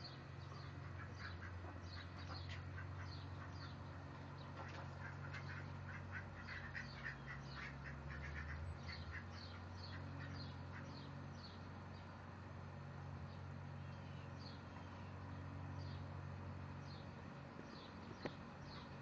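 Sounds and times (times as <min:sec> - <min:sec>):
steady low hum: 0:00.0 - 0:19.0
ducks quacking: 0:00.5 - 0:11.1.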